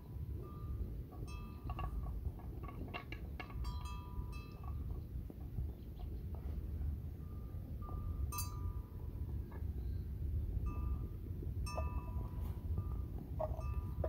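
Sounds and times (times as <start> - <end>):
small bell clinking: 3.6 - 4.9, 7.2 - 9.0, 10.6 - 14.0.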